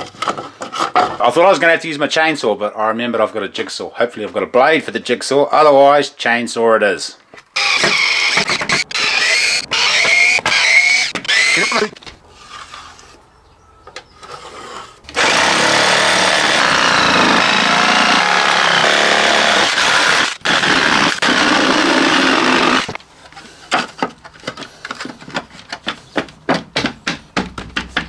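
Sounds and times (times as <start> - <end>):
electric jigsaw cutting wood: 7.6 - 12.0, 15.1 - 23.0.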